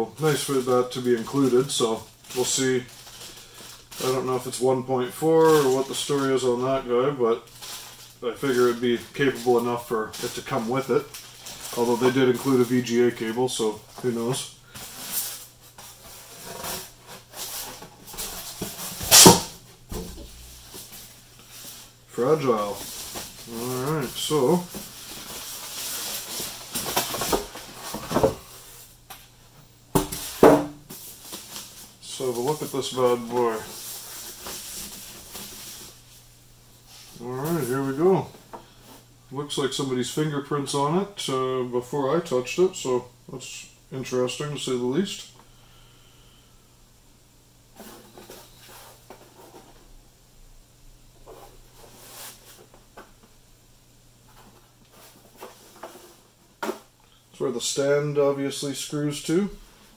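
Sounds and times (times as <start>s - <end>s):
plastic bag rustling and crinkling: 0.2s - 29.0s, 30.0s - 39.1s, 54.2s - 57.0s.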